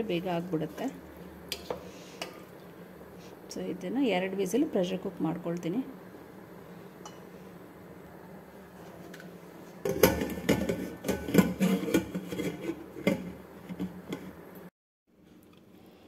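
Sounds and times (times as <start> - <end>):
low steady hum: 0.0 - 16.0
metal lid clanking and scraping: 9.8 - 14.3.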